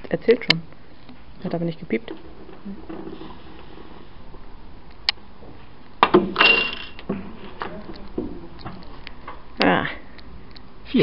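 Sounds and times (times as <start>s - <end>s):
coins dropping into glass: 6.4s - 7.0s.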